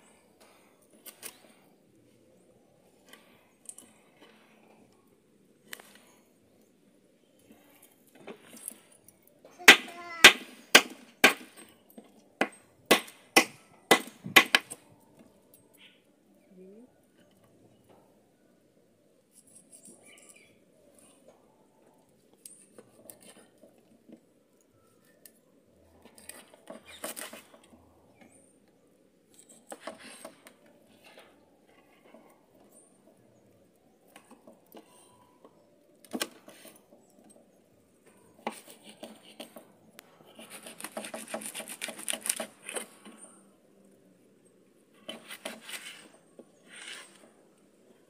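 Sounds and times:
knife scraping fish scales: 40.3s - 42.9s.

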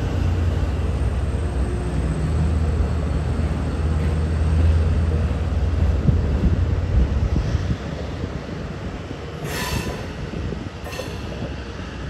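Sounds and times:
train wheels rumbling on rail: 0.0s - 12.0s
train running hiss: 9.1s - 12.0s.

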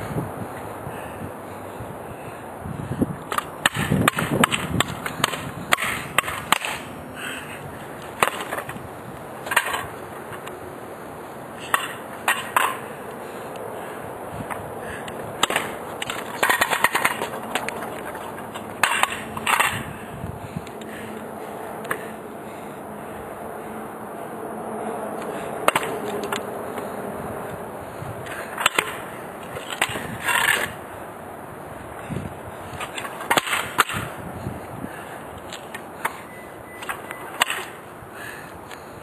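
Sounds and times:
steady outdoor noise: 0.0s - 39.0s
sharp clacks on pavement: 3.1s - 22.6s, 25.1s - 39.0s.

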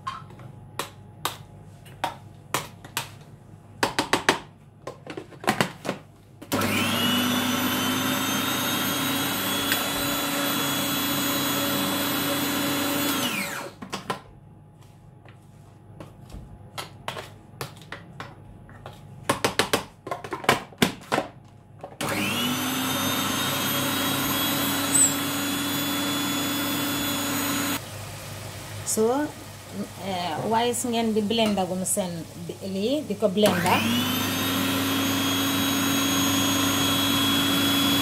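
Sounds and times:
food processor motor whining: 6.5s - 13.8s, 22.0s - 27.8s, 33.4s - 38.0s.

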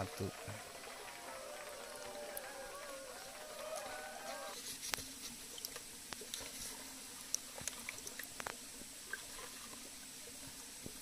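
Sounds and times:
water splashing in plastic bucket: 0.0s - 4.0s.

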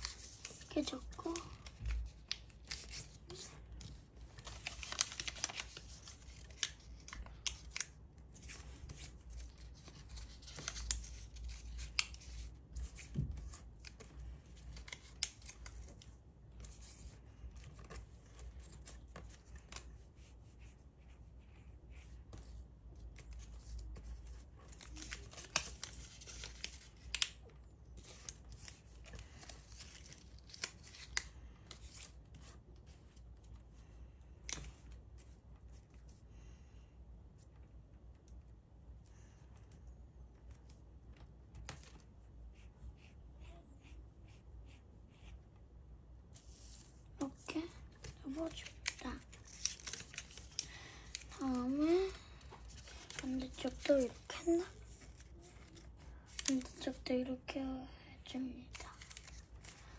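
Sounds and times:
paper rustling and crinkling: 0.0s - 33.7s, 46.3s - 57.3s, 58.6s - 59.9s.

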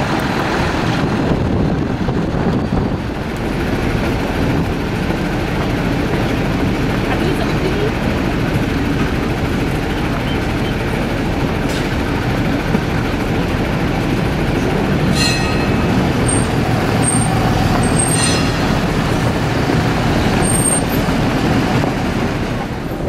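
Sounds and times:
tram rumbling on rails: 0.0s - 23.0s
tram bell ringing: 13.2s - 22.3s.

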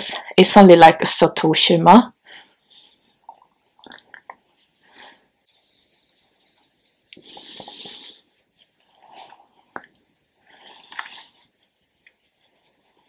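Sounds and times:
makeup brush swishing: 5.5s - 9.7s, 10.6s - 13.0s.

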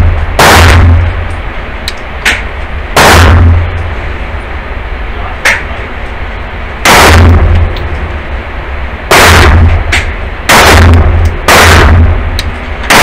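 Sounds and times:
quiet sharp crack: 1.9s - 2.5s, 9.8s - 10.2s.

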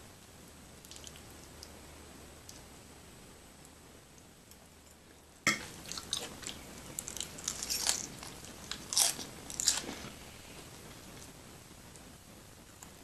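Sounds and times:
crisp crunching: 5.8s - 10.2s.

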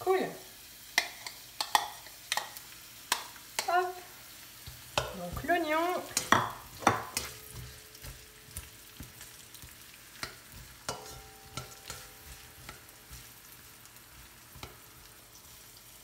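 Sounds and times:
onion sizzling in oil: 0.0s - 16.0s
spatula tapping and scraping pan: 0.9s - 3.8s, 4.6s - 15.5s.

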